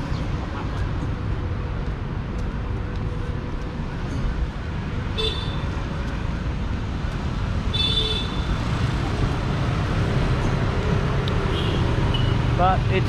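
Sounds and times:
traffic rumble: 0.0 - 13.0.

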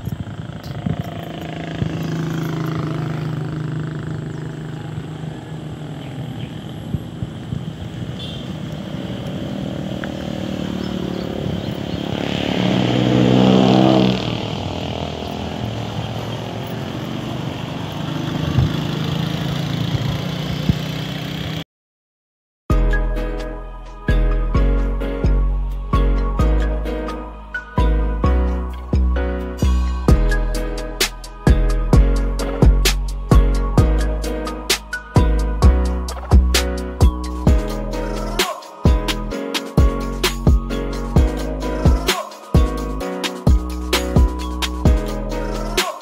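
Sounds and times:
passing vehicle engines: 0.0 - 21.6, 27.1 - 46.0
road and wind noise: 0.0 - 21.6, 23.0 - 46.0
vehicle passing close: 0.0 - 21.6.

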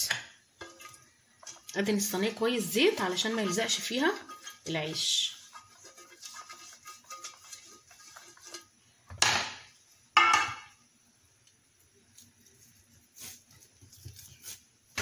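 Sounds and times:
brush scraping metal tray: 0.6 - 8.8.

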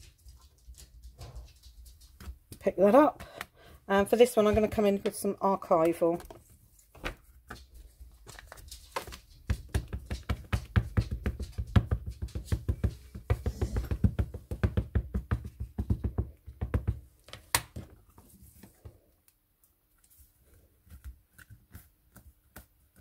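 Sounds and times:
ink pad tapping on rubber stamp: 9.5 - 17.0.

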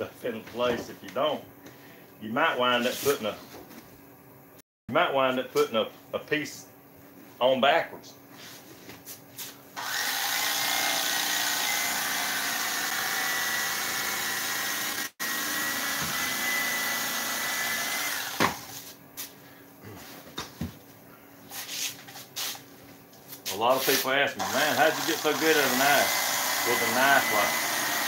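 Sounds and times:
electric knife whirring: 9.8 - 18.8, 24.4 - 28.0.

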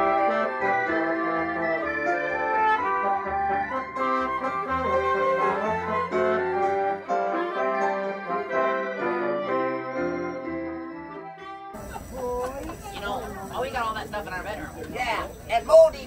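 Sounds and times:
instrumental music with bass line: 0.0 - 11.8.

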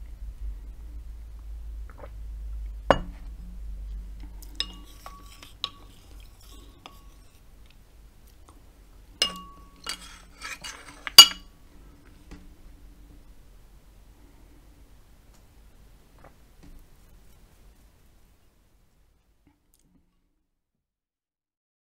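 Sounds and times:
ceramic tableware clinking: 4.6 - 7.2, 9.2 - 11.5.

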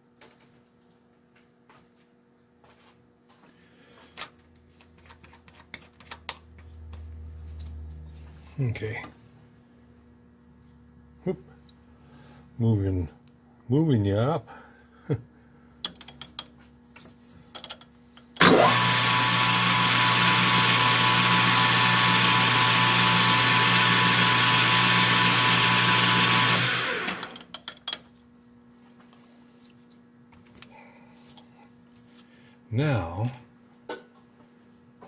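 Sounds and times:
lathe motor running: 18.4 - 27.4
drill cutting metal: 24.9 - 27.4.

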